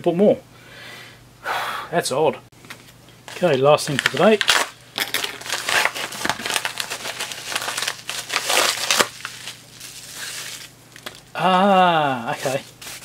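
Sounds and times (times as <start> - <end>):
packaging crinkling: 3.3 - 11.3, 12.3 - 13.0.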